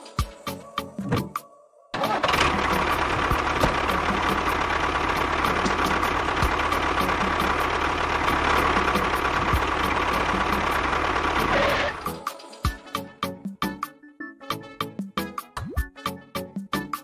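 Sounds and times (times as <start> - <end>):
tractor engine idling: 2.0 - 12.2.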